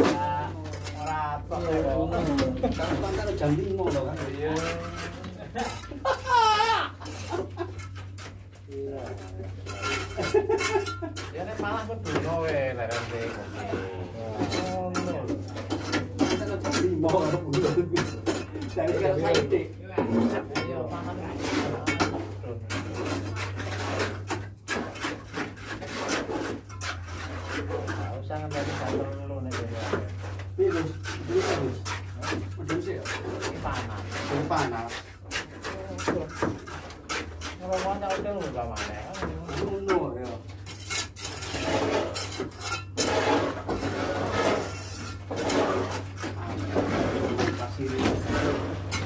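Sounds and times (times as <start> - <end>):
scraping and rubbing strokes: 0.0 - 6.0, 20.1 - 49.0
metal tools scraping and clinking: 40.4 - 49.0.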